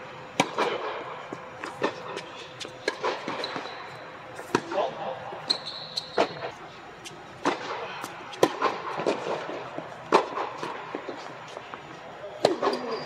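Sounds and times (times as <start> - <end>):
racket striking tennis ball: 0.4 - 1.0, 1.6 - 3.7, 4.4 - 4.8, 7.4 - 11.6.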